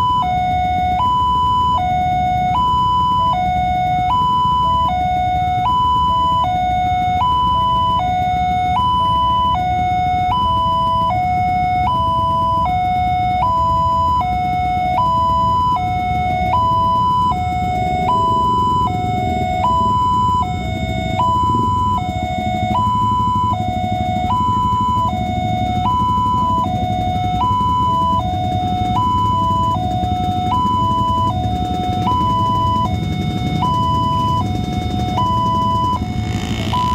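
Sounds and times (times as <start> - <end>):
level-crossing two-tone alarm: 0.0 - 36.9
waiting traffic noise: 0.0 - 36.9.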